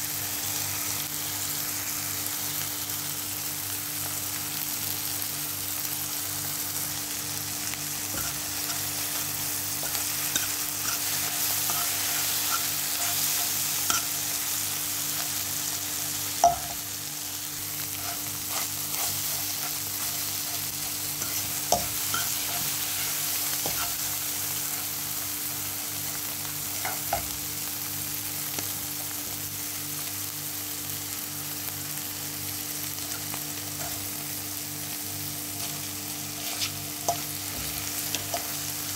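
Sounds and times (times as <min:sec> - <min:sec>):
food sizzling in a frying pan: 0:00.0 - 0:38.9
metal utensil scraping a pan: 0:08.1 - 0:14.3, 0:17.9 - 0:24.1, 0:36.4 - 0:38.5.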